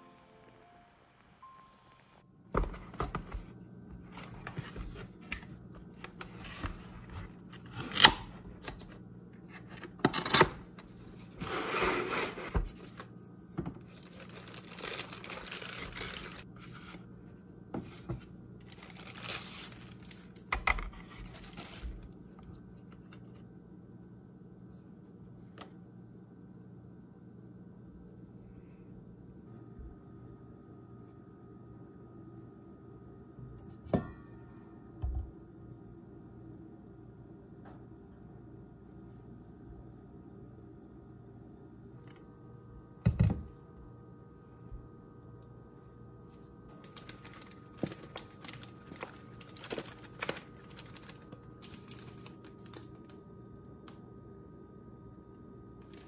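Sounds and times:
paper and pulp tray rustling: 13.8s - 17.0s, 17.8s - 22.0s, 46.7s - 52.8s
plastic wrap crinkling and tearing: 13.8s - 17.0s, 18.6s - 22.2s, 46.7s - 53.2s.

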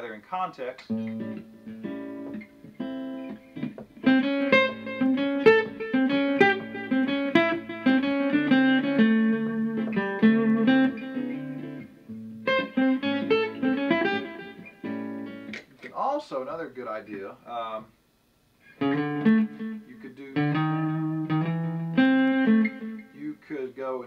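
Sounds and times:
acoustic guitar lick: 0.9s - 15.7s, 18.6s - 19.8s, 20.4s - 23.2s.

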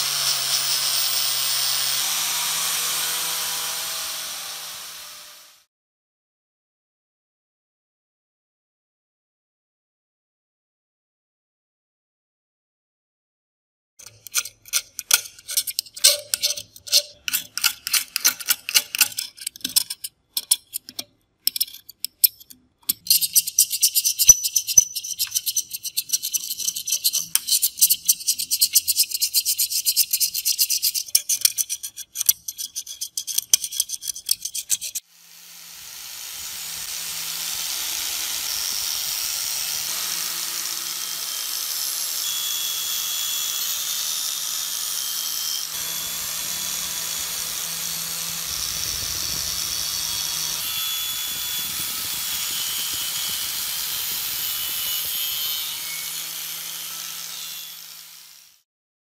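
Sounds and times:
wire cup brush on metal: 14.0s - 35.0s
metal scraper scraping rust: 14.0s - 35.1s, 45.6s - 57.8s.

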